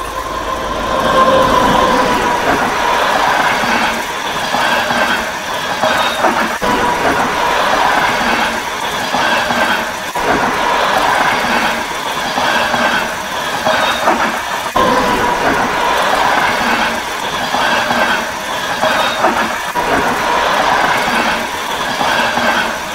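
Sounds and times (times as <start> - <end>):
wheel squealing tone: 0.0 - 4.8
train wheels on rails: 0.0 - 22.9.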